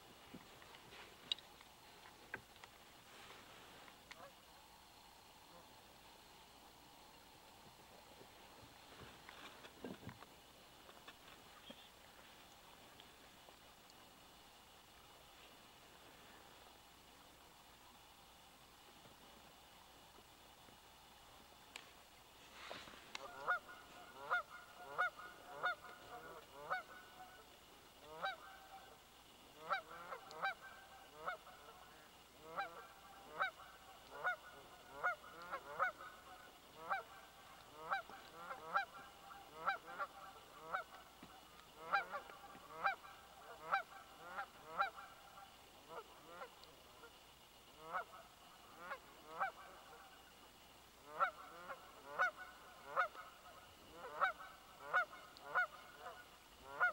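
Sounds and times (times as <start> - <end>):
geese honking: 22.6 - 29.0, 29.6 - 47.2, 47.8 - 50.2, 51.0 - 56.9.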